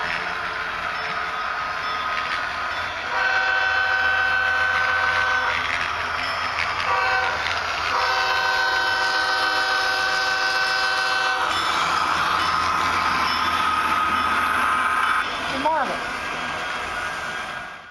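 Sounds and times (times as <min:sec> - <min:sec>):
model locomotive horn blasts: 0:03.0 - 0:05.7, 0:06.8 - 0:11.5.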